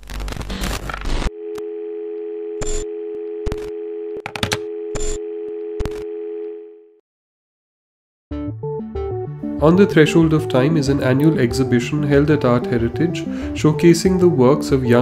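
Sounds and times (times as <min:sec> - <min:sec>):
telephone dial tone: 0:01.3 - 0:07.0.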